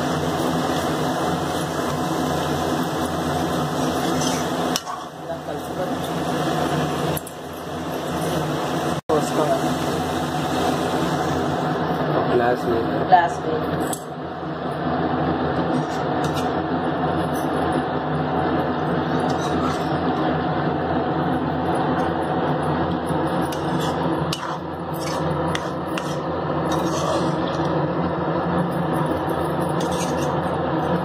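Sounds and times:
metal spoon scraping a wok: 0.2s - 6.5s, 15.6s - 16.6s, 18.9s - 20.4s, 21.8s - 27.8s, 28.7s - 31.0s.

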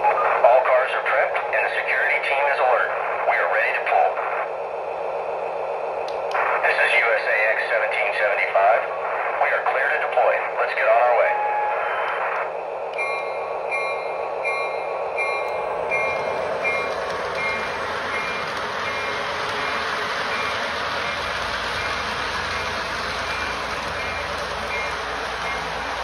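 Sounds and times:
electronic locomotive bell ringing: 12.9s - 26.0s
model train rumbling on rails: 12.9s - 26.0s.

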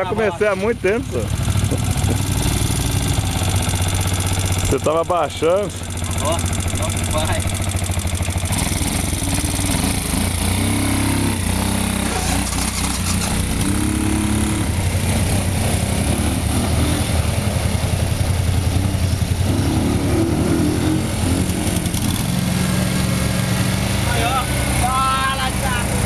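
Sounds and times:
quad bike engine revving: 0.0s - 26.0s.

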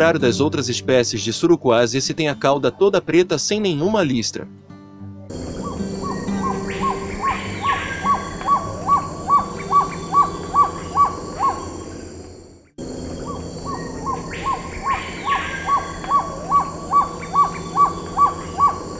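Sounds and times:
bird singing short notes: 5.3s - 12.2s, 13.2s - 18.9s.

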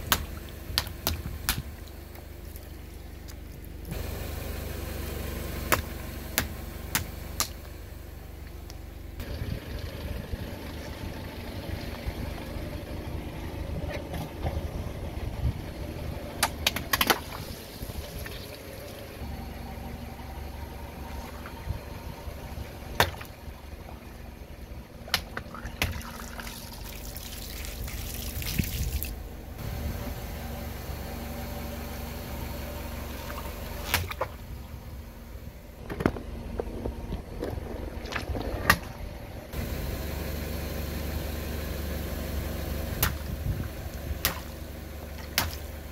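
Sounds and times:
car engine running low: 0.0s - 45.9s
liquid spilling: 25.5s - 29.1s.

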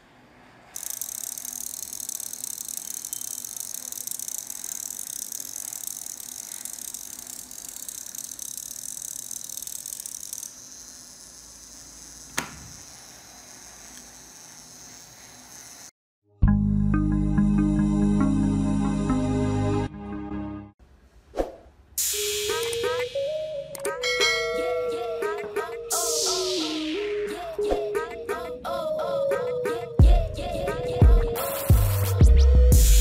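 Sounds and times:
relay chattering buzz: 0.8s - 15.9s.

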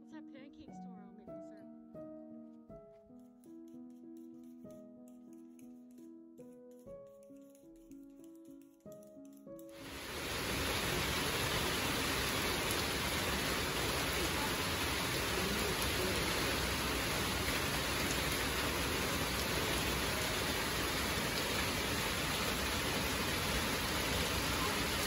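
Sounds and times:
heavy rain downpour: 9.8s - 25.0s.

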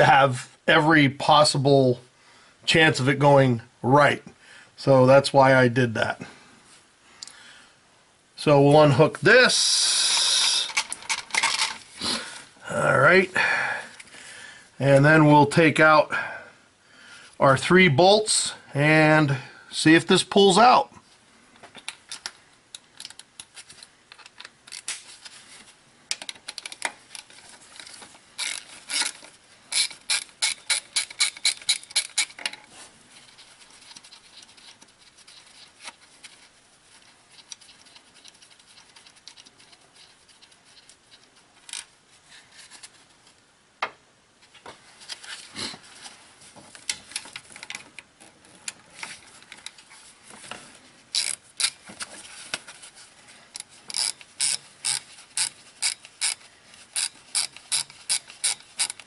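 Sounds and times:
ratchet wrench clicking: 28.4s - 29.1s, 29.7s - 32.3s, 51.1s - 51.8s, 53.6s - 59.0s.

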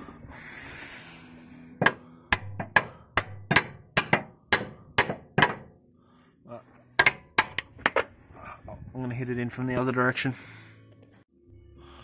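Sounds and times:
hammer strikes on metal: 1.8s - 5.7s, 7.0s - 8.0s.

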